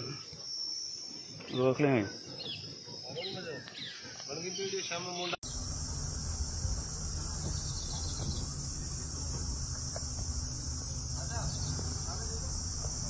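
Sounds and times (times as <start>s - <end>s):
insects droning in chorus: 0.0s - 13.0s
low rumble: 5.4s - 13.0s.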